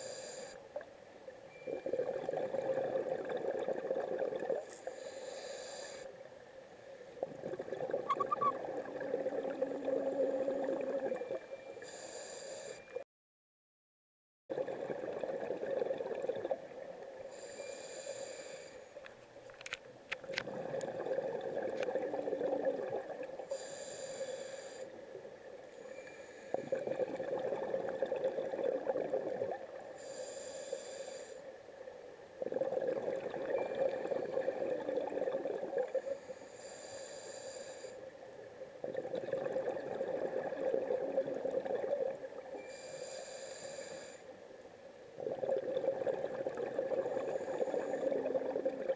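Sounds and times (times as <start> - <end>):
hissing regulator inhale: 0.0 - 0.6, 4.8 - 6.2, 11.8 - 12.9, 17.3 - 19.0, 23.4 - 25.0, 25.8 - 26.9, 30.0 - 31.5, 36.0 - 38.0, 42.6 - 44.4, 47.0 - 48.3
burble of exhaled bubbles: 1.7 - 4.7, 7.2 - 11.4, 14.5 - 16.8, 20.2 - 23.4, 26.6 - 29.8, 32.4 - 36.1, 38.8 - 42.5, 45.2 - 48.9.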